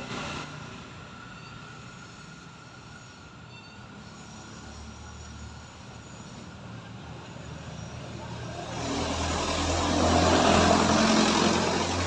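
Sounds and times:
city background noise: 0.0s - 12.0s
distant vehicles rumbling: 4.4s - 12.0s.

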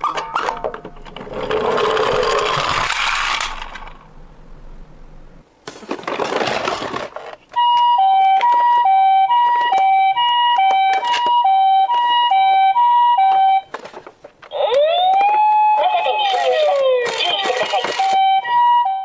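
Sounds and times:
toy two-tone siren beeps: 7.6s - 13.7s, 14.5s - 19.0s
toy scraping rustle: 16.3s - 18.2s.

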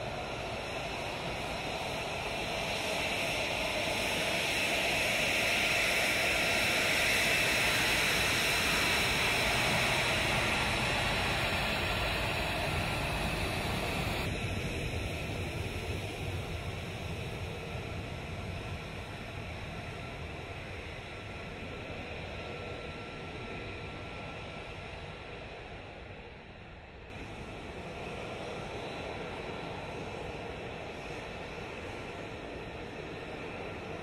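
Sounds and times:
jet engine rushing: 0.0s - 24.2s.

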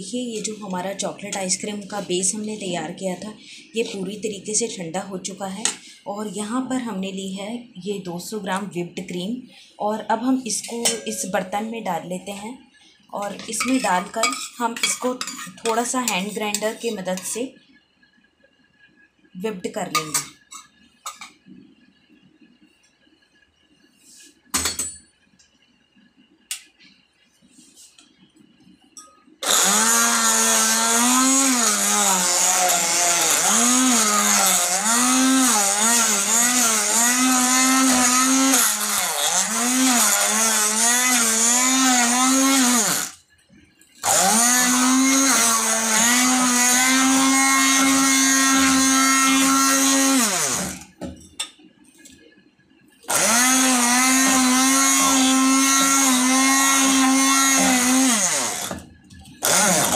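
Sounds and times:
hand blender motor whirring: 29.4s - 43.2s, 44.0s - 50.9s, 53.1s - 58.8s, 59.4s - 59.9s.

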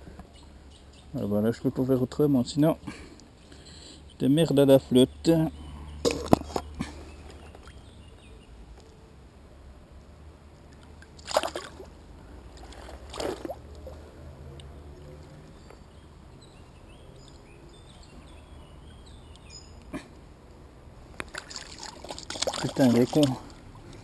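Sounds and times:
faint stream trickle: 0.0s - 8.9s, 9.9s - 24.0s
fish splashing at water's edge: 10.7s - 14.0s, 21.2s - 24.0s.

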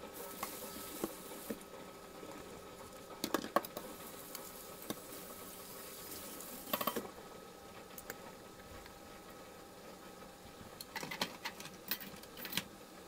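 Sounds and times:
metal dishware clanking: 6.7s - 7.0s.

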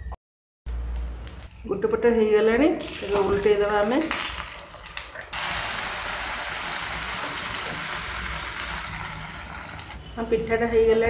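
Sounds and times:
batter sizzling in hot oil: 2.8s - 10.0s.

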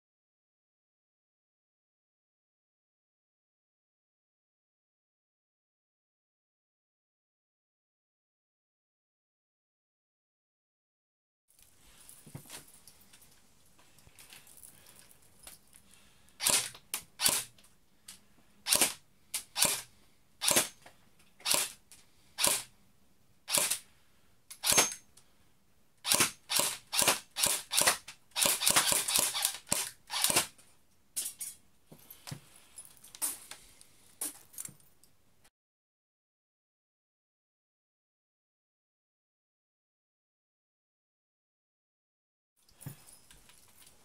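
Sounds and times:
airsoft pistol firing: 23.5s - 23.8s, 26.1s - 30.5s.

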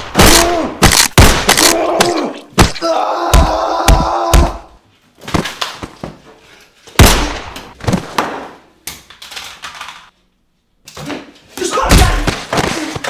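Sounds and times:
thuds and crashes of scuffle: 11.8s - 13.0s.

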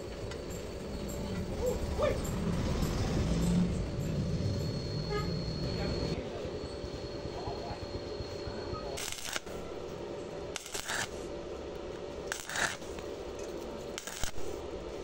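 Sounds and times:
steady hum: 0.0s - 15.0s
welding arc hissing: 8.7s - 9.9s, 10.5s - 15.0s.

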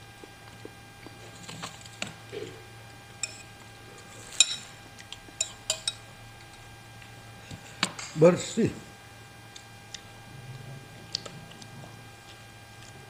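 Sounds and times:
low steady hum: 0.0s - 13.0s
spoon clinking against bowl: 3.2s - 3.5s, 4.3s - 4.7s, 5.4s - 6.0s.

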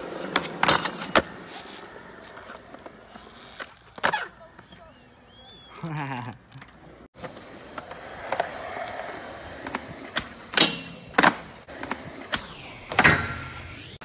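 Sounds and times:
skateboard wheels rolling on concrete: 0.0s - 14.0s
skateboard pop and clacks: 9.6s - 13.4s.

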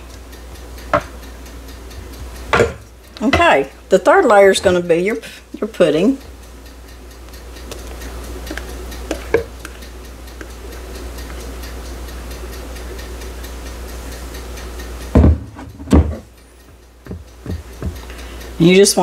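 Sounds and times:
kitchen timer ticking: 0.0s - 19.0s
heavy thumps: 2.5s - 3.6s, 15.2s - 16.3s, 17.0s - 18.0s.

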